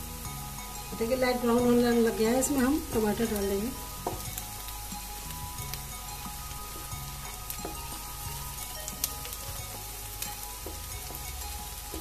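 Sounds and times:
onions sizzling in hot oil: 0:00.0 - 0:12.0
spatula scraping and tapping pan: 0:04.0 - 0:04.5, 0:06.6 - 0:12.0.

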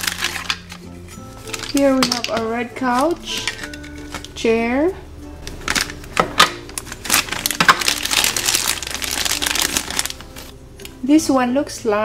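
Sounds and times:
plastic bag crinkling: 0:00.0 - 0:04.4, 0:05.4 - 0:10.5.

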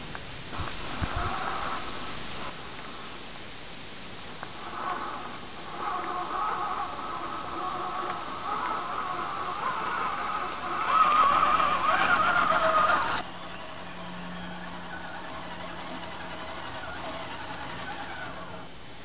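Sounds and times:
faint steady whine: 0:00.0 - 0:19.0
rc truck motor whine: 0:04.3 - 0:19.0.

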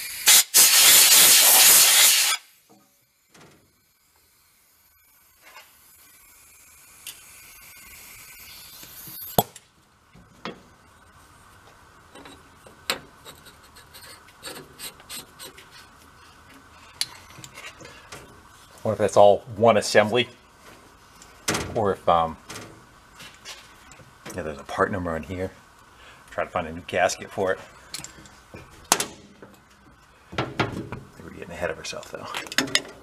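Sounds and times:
air blow gun hissing: 0:00.0 - 0:09.6.

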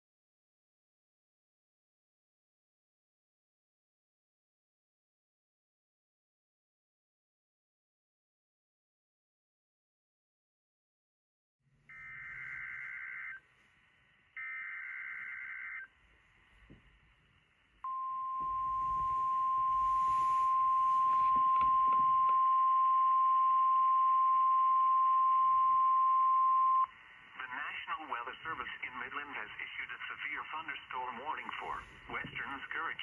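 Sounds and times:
steady warning alarm tone: 0:11.9 - 0:13.5, 0:14.4 - 0:16.0, 0:17.8 - 0:26.9
faint radio static: 0:11.9 - 0:33.0.

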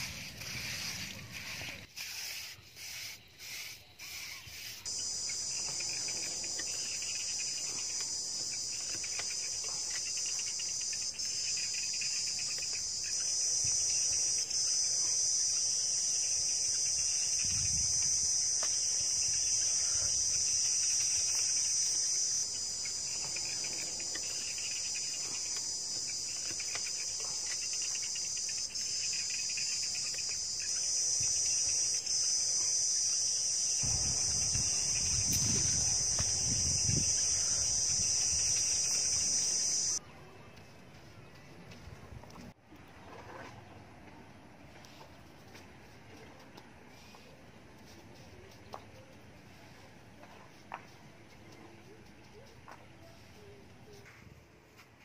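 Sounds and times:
high-pitched insect chorus: 0:00.0 - 0:40.0
low pulsing insect call: 0:00.0 - 0:40.0.

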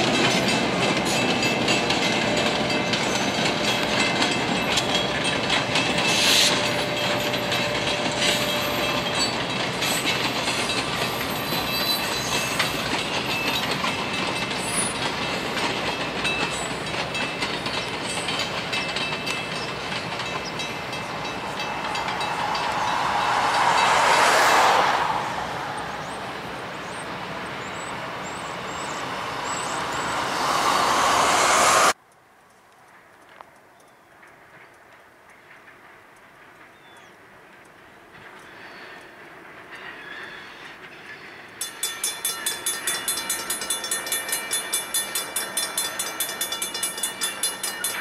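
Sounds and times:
locomotive rumble: 0:00.0 - 0:32.0
train wheels clicking over rail joints: 0:00.0 - 0:32.0, 0:34.2 - 0:48.0.

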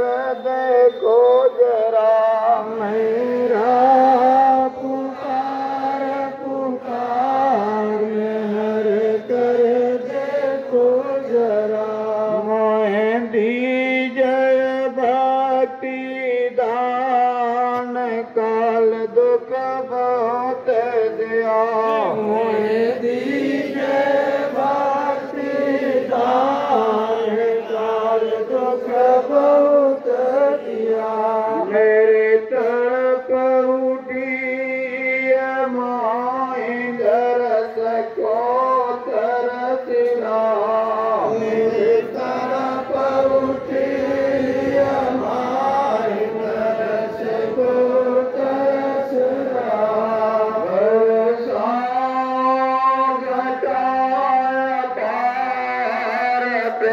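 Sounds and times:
voices chanting together: 0:02.6 - 0:12.4, 0:21.9 - 0:32.8, 0:36.2 - 0:56.9.

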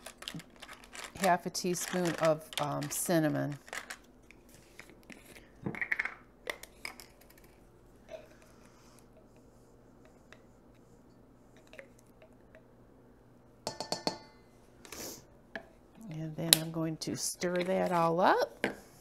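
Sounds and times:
clinks against steel mixing bowl: 0:13.7 - 0:14.4.

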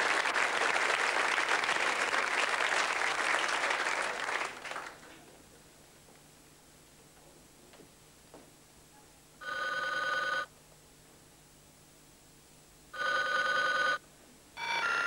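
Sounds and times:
electronic ringtone notes: 0:14.6 - 0:15.0.

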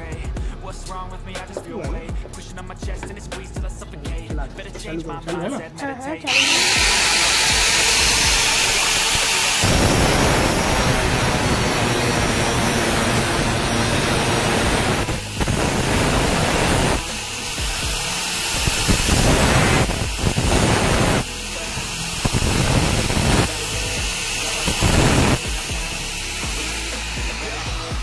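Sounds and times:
angle grinder cutting steel: 0:06.3 - 0:28.0.

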